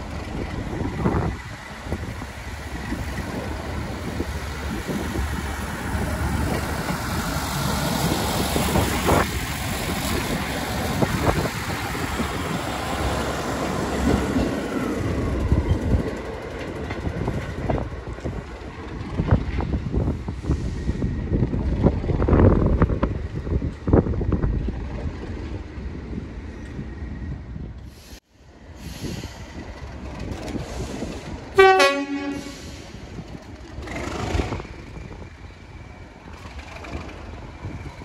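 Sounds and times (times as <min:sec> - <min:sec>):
wheels clacking over rail joints: 0:00.0 - 0:20.1, 0:32.5 - 0:38.0
diesel train engine running: 0:00.0 - 0:38.0
train rumble: 0:00.0 - 0:38.0.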